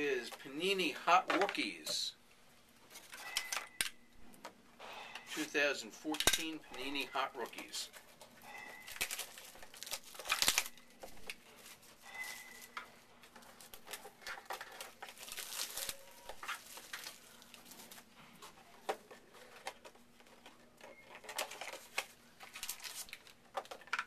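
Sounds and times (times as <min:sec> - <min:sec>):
packaging crinkling and tearing: 0:06.9 - 0:20.5, 0:21.1 - 0:23.9.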